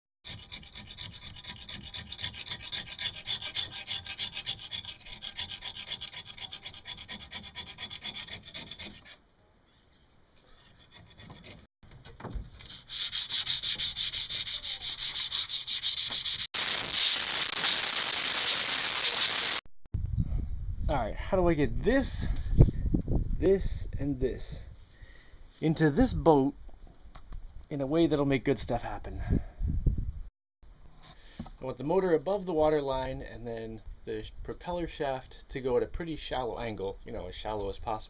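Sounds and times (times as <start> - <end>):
knife scraping metal propeller: 0.3 - 9.2, 10.4 - 11.7.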